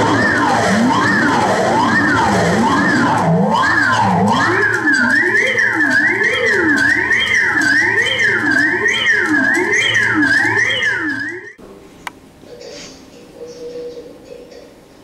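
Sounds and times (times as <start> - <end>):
electronic warbling tones: 0.0 - 11.6.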